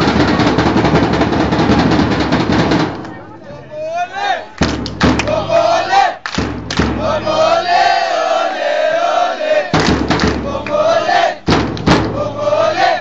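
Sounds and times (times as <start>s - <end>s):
crowd chanting in unison: 3.1s - 13.0s
loud thumps: 6.4s - 7.3s, 9.7s - 10.6s, 11.4s - 12.4s.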